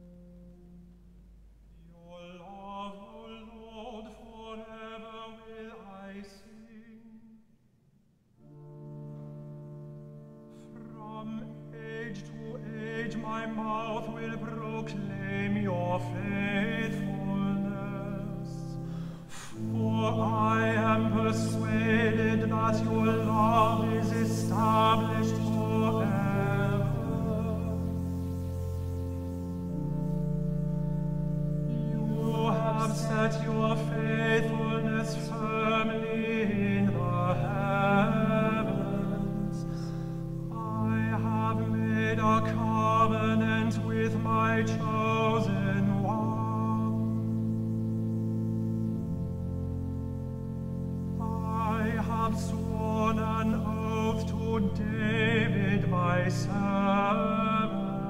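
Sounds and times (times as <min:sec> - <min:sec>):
sustained organ chords: 0:00.0 - 0:06.2, 0:08.4 - 0:58.0
man singing: 0:01.7 - 0:07.4, 0:10.6 - 0:28.3, 0:31.7 - 0:47.5, 0:51.2 - 0:58.0.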